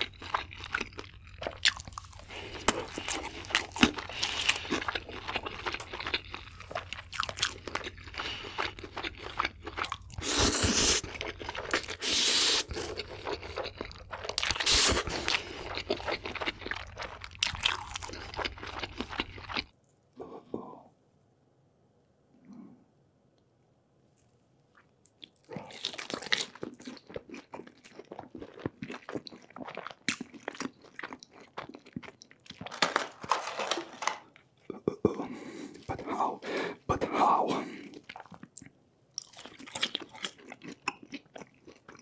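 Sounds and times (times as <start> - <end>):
wet crunchy chewing: 0.0 - 19.7, 24.8 - 34.9, 37.8 - 42.0
noodle slurping: 10.2 - 17.2.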